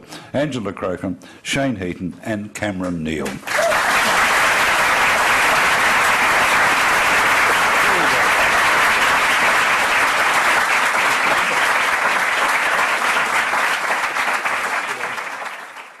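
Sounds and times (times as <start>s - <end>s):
audience applauding: 3.2s - 16.0s.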